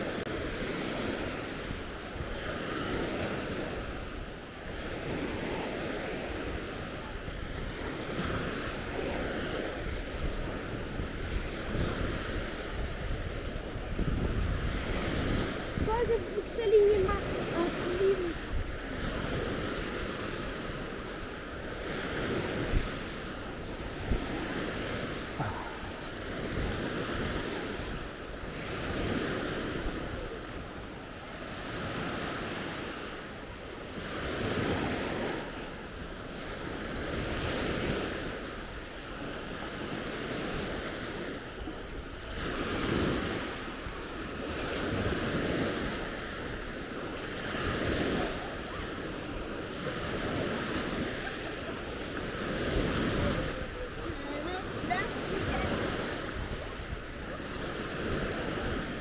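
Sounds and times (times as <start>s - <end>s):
wind buffeting microphone: 0.0s - 32.8s, 34.0s - 59.0s
waves breaking on beach: 0.0s - 59.0s.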